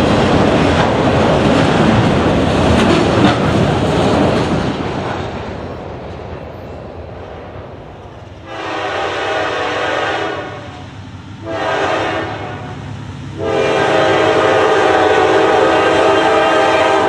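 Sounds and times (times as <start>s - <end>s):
train rumbling: 0.0s - 17.0s
locomotive air horn blasts: 8.4s - 17.0s.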